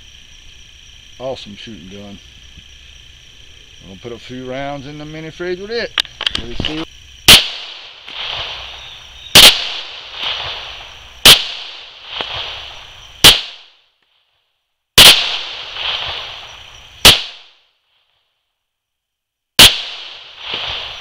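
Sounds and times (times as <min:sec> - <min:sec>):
pistol shots: 0:07.3 - 0:08.4, 0:09.3 - 0:10.4, 0:11.2 - 0:12.3, 0:13.2 - 0:13.7, 0:15.0 - 0:16.2, 0:17.0 - 0:17.6, 0:19.6 - 0:20.9
gunshot echo: 0:07.3 - 0:12.6, 0:13.2 - 0:13.8, 0:15.0 - 0:16.4, 0:17.0 - 0:17.6, 0:19.6 - 0:21.0.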